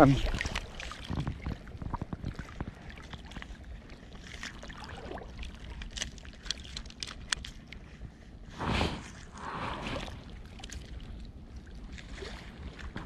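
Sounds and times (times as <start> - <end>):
small waves lapping: 0.0 - 13.0
low wind rumble: 7.6 - 13.0.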